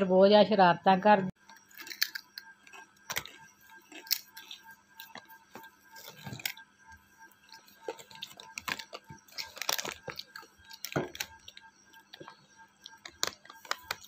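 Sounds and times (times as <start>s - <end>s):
potato chips crunching: 1.5s - 6.6s, 7.5s - 14.0s
plastic packet crinkling: 7.5s - 11.6s, 12.9s - 14.0s.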